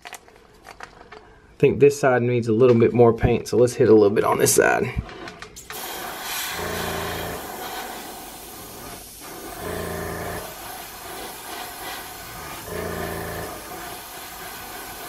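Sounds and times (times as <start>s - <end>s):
airbrush spraying hiss: 5.6s - 15.0s.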